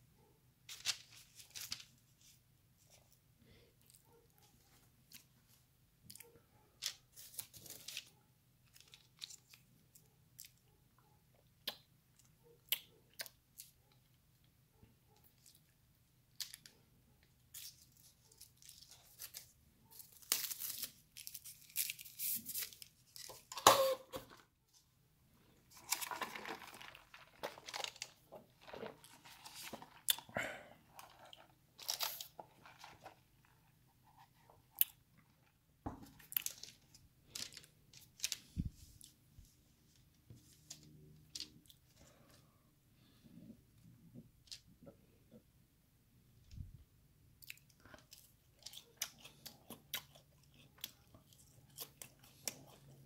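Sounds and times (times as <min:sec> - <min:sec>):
chewing: 0:47.4 - 0:53.0.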